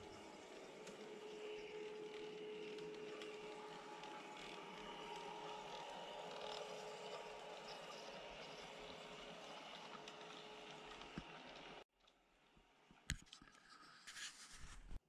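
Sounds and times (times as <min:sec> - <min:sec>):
model train motor whine: 0:00.0 - 0:11.8
wheels rolling on track: 0:00.0 - 0:11.8.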